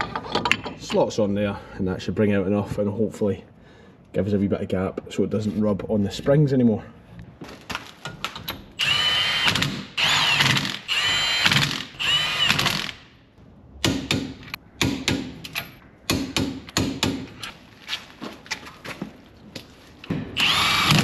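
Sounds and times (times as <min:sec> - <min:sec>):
impact wrench whining: 0:08.8 - 0:13.1, 0:20.2 - 0:21.0.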